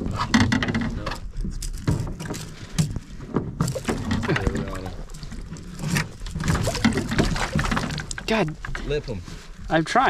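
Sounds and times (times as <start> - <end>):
water splashing and sloshing: 0.0 - 10.0
fish thrashing at water surface: 3.6 - 8.6.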